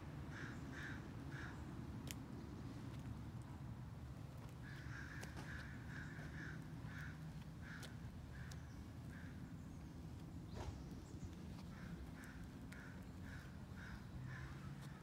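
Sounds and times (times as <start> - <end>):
faint low rumble: 0.0 - 15.0
bird calling: 4.6 - 15.0.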